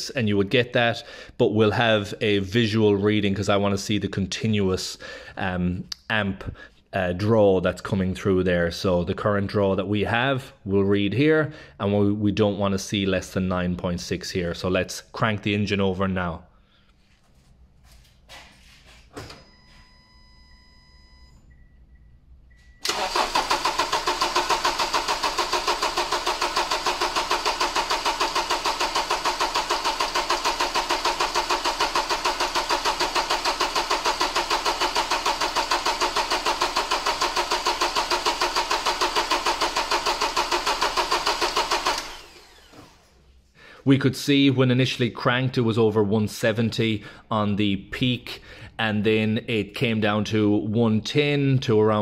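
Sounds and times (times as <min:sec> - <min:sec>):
faint electronic beep: 0:19.4 - 0:22.8
starter motor cranking engine: 0:22.8 - 0:43.2.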